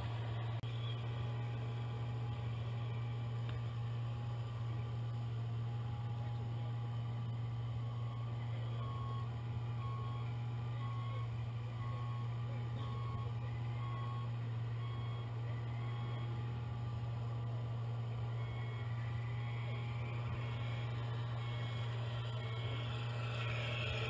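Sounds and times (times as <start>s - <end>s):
low engine hum: 0.0s - 24.0s
reversing beeper: 0.6s - 3.1s, 7.7s - 24.0s.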